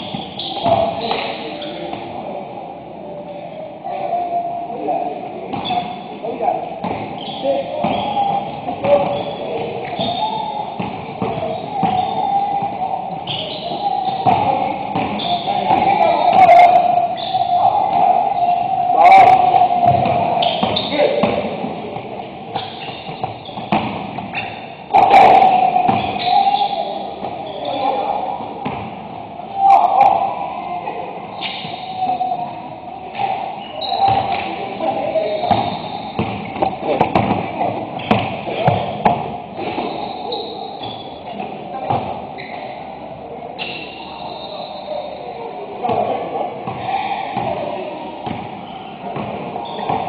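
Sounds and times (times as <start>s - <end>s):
sneakers squeaking: 0.0s - 2.4s, 5.0s - 50.0s
players' voices: 0.0s - 50.0s
basketball bouncing: 10.8s - 12.1s, 19.3s - 21.6s, 22.6s - 26.3s, 35.4s - 39.9s.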